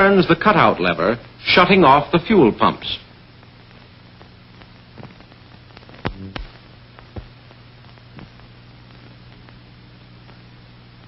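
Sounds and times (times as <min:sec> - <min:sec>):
faint hiss: 0:00.0 - 0:11.0
film clicks and pops: 0:03.6 - 0:09.6.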